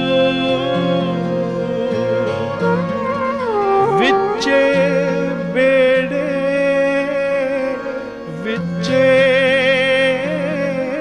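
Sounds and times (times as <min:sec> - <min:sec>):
acoustic guitar: 0:00.0 - 0:11.0
flute: 0:00.0 - 0:11.0
harmonium chords: 0:00.0 - 0:11.0
man singing with vibrato: 0:03.7 - 0:11.0.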